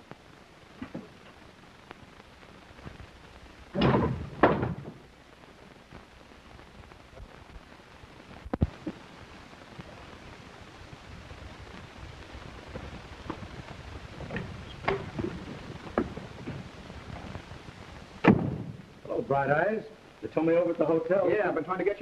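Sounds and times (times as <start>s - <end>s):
film soundtrack hiss: 0.0s - 22.0s
heavy rumbling thud: 3.8s - 5.0s, 18.2s - 18.9s
sharp knock: 18.2s - 18.8s.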